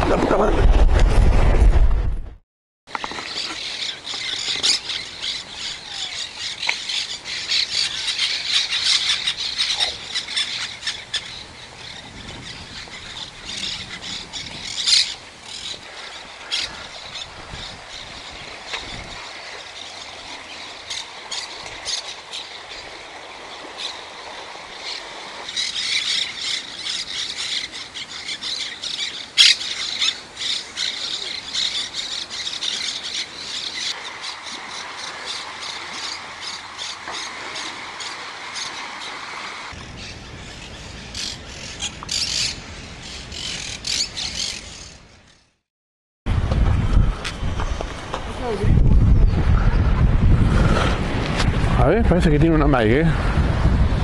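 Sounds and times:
flock of birds chattering: 2.9s - 45.0s.

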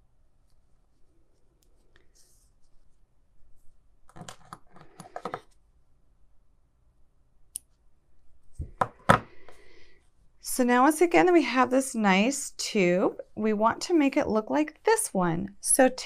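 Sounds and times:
faint rustling of yarn: 0.3s - 3.9s.

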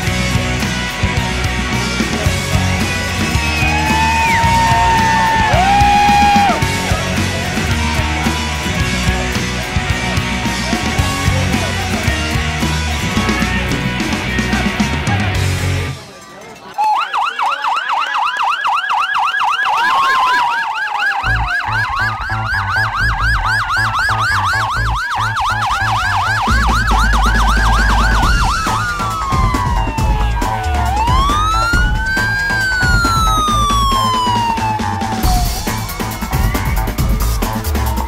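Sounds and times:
police siren wail: 1.9s - 13.8s, 16.7s - 38.0s
police siren yelp: 3.2s - 8.1s, 16.7s - 38.0s.

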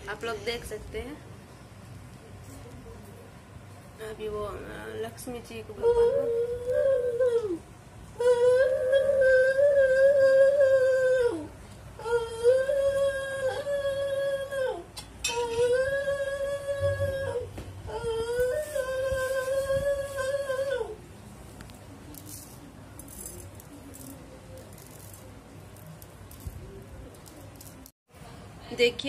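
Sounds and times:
woman chanting prayer: 4.0s - 7.6s.

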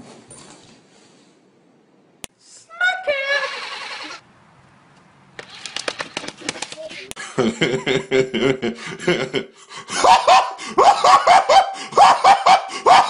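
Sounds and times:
man laughing in rapid bursts: 6.2s - 13.0s.

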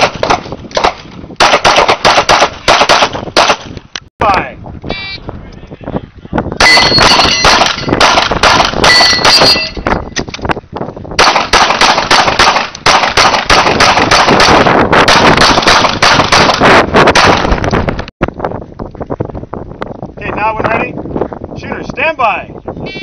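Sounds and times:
pistol firing rapidly: 0.0s - 3.7s, 6.6s - 9.6s, 11.2s - 17.6s.

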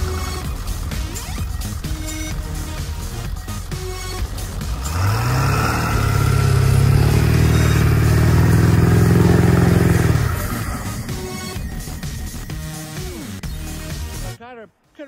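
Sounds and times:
pickup engine revving: 0.0s - 13.4s
tyres spinning in snow: 4.2s - 11.8s.

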